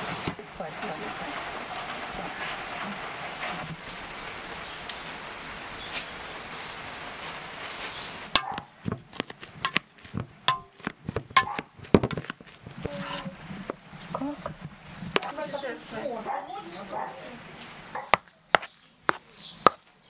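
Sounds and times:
steady hiss of steaming pot: 0.0s - 8.4s
knife chopping in enamel bowl: 8.4s - 12.3s, 18.0s - 19.8s.

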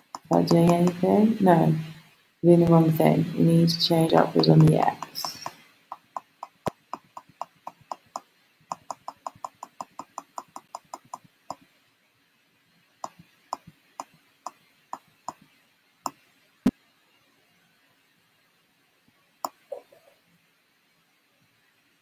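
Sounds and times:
mouse and keyboard clicks: 0.0s - 1.0s, 4.4s - 11.6s.

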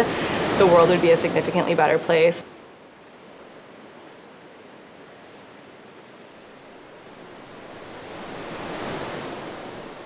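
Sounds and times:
ocean surf hissing: 0.0s - 2.4s, 6.5s - 10.0s.

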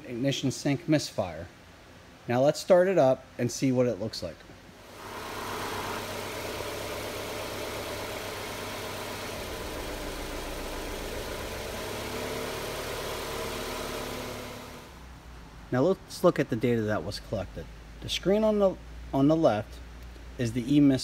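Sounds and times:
car engine idling with misfire: 4.9s - 14.9s.

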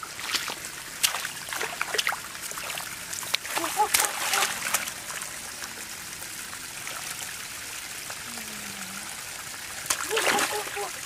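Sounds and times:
water trickling: 0.0s - 11.0s
hands splashing in muddy water: 0.2s - 5.0s.

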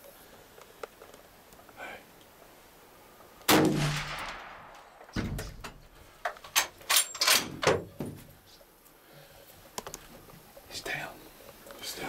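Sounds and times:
rifle shot with echo: 3.5s - 5.6s
sharp clicks and knocks: 4.2s - 8.2s
dull thump: 5.1s - 5.8s.

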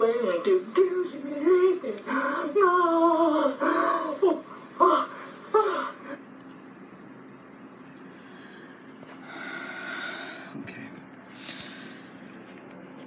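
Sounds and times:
faint hiss: 0.0s - 6.2s
man moaning high-pitched: 0.0s - 6.2s.

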